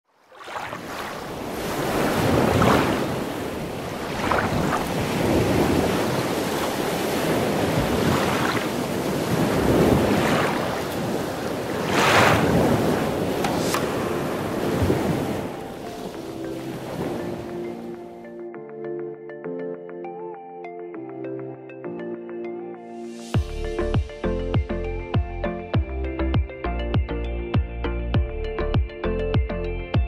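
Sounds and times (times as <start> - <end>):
ocean surf breaking on beach: 0.3 - 18.3
soft music: 13.5 - 30.0.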